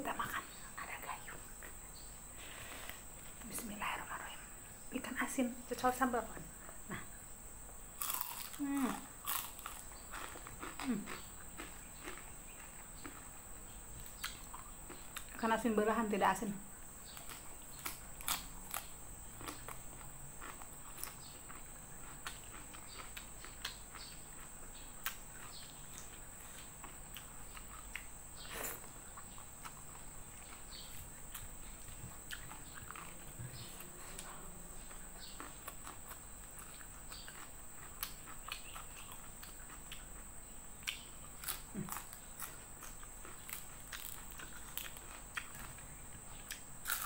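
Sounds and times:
chewing and lip smacking: 0:17.1 - 0:28.1, 0:28.8 - 0:34.3, 0:34.9 - 0:47.0.

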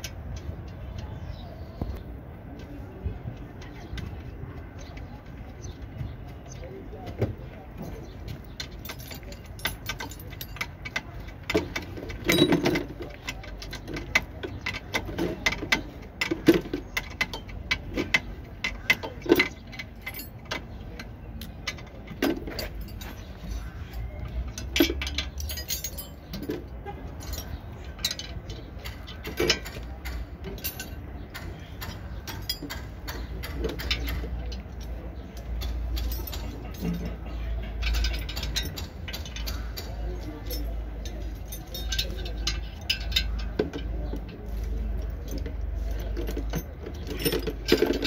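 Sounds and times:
metallic clicks of tools: 0:08.3 - 0:48.0.

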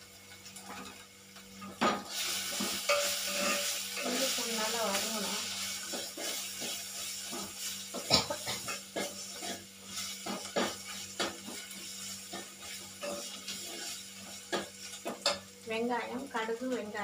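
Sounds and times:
onions sizzling: 0:00.0 - 0:17.0
metal spoon scraping a pot: 0:02.0 - 0:04.4, 0:05.8 - 0:15.4.

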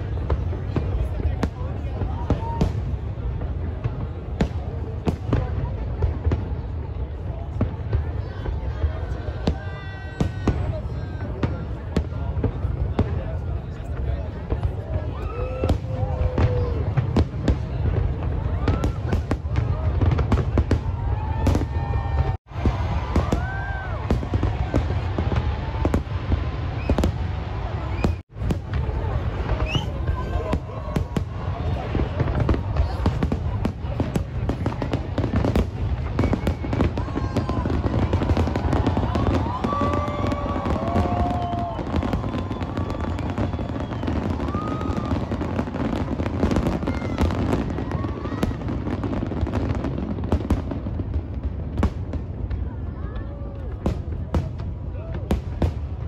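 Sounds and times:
fireworks sharp cracks: 0:00.0 - 0:53.0
fireworks bursting rumble: 0:00.0 - 0:56.0
fireworks whistles: 0:26.7 - 0:27.2, 0:27.8 - 0:28.2, 0:29.5 - 0:31.2, 0:36.0 - 0:49.0.

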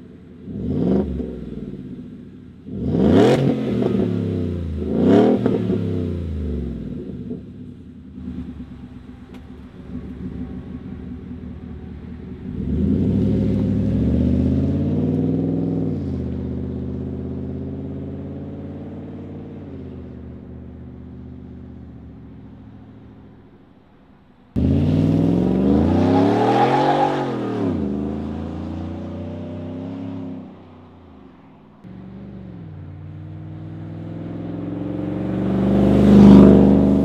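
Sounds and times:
pickup truck engine accelerating: 0:08.2 - 0:23.7, 0:24.5 - 0:30.8, 0:31.8 - 0:37.0.

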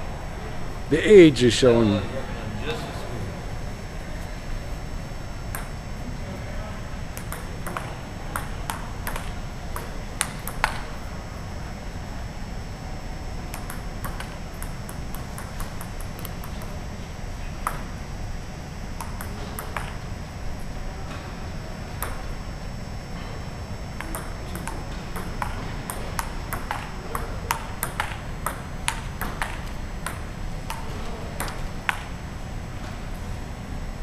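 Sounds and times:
table tennis ball clicking: 0:05.5 - 0:05.8, 0:07.1 - 0:10.9, 0:13.5 - 0:16.8, 0:19.0 - 0:20.0, 0:22.0 - 0:22.4, 0:24.0 - 0:32.1.

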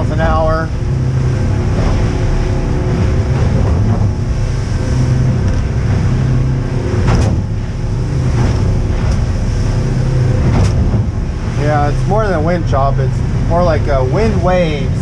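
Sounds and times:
outboard engines running: 0:00.0 - 0:15.0
hull slamming through chop: 0:06.9 - 0:09.3.

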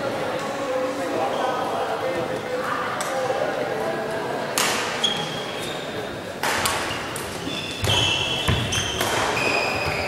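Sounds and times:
shoes squeaking on court floor: 0:05.0 - 0:06.0, 0:06.8 - 0:10.0.

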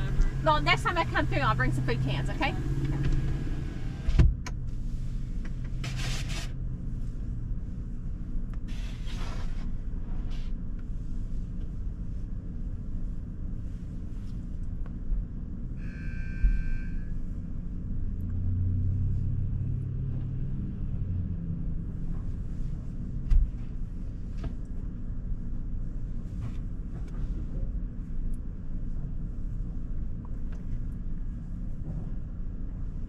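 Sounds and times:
car wash machinery rumble: 0:00.0 - 0:33.0
brief beeping tone: 0:15.8 - 0:17.1.

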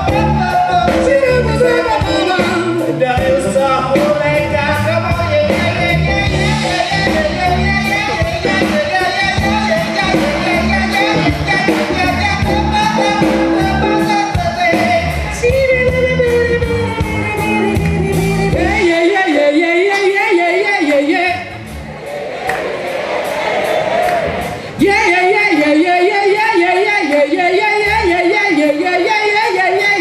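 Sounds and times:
live band playing jazz-soul: 0:00.0 - 0:30.0.

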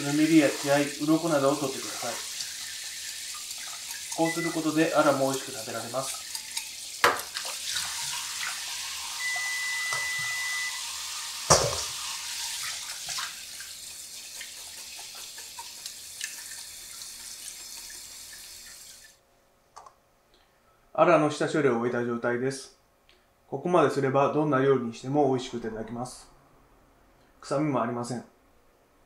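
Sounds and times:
tap running into a sink: 0:06.1 - 0:08.6, 0:11.4 - 0:12.0.

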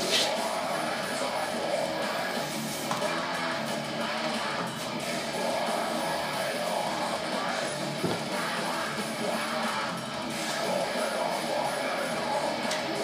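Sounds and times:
rock music with guitar and singing: 0:00.2 - 0:13.0.

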